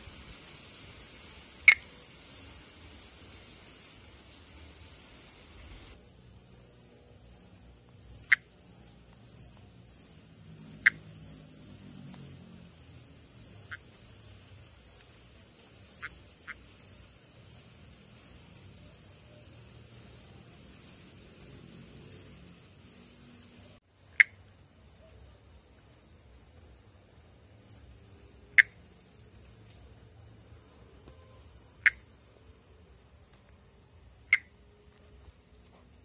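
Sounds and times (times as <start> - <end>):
high-pitched insect trill: 0.0 - 36.0
tree frog click-like calls: 1.4 - 2.0, 7.9 - 23.0, 24.0 - 26.0, 28.4 - 29.3, 31.6 - 32.2, 34.2 - 34.6.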